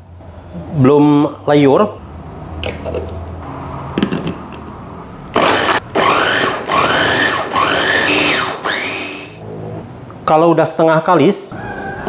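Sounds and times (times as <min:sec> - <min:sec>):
electric food chopper motor: 0:05.4 - 0:09.4.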